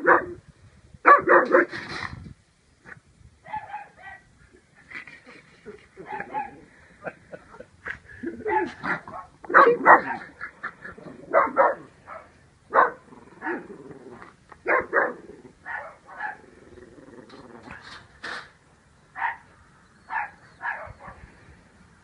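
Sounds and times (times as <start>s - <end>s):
small dog barking: 0.0s - 0.4s, 1.1s - 1.7s, 3.5s - 4.3s, 6.0s - 6.6s, 8.4s - 10.4s, 11.3s - 13.7s, 14.6s - 16.4s, 19.2s - 19.5s, 20.1s - 21.2s.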